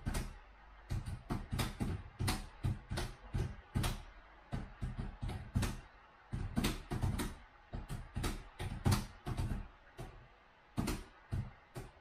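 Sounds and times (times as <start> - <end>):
typing on laptop keyboard: 0.9 - 4.0, 4.8 - 10.1.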